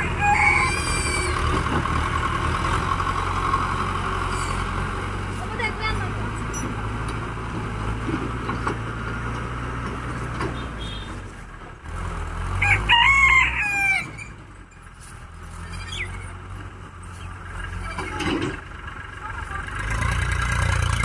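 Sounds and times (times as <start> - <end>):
rooster crowing: 0.0 - 1.5, 12.6 - 14.3
distant tractor engine hum: 0.0 - 21.0.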